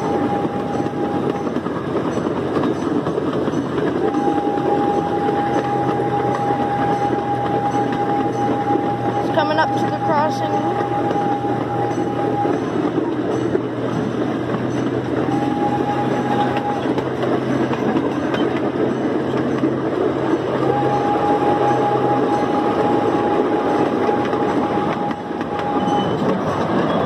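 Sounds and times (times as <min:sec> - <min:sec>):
train wheels rumbling on rails: 0:00.0 - 0:27.0
thin high tone: 0:04.1 - 0:12.8, 0:20.6 - 0:27.0.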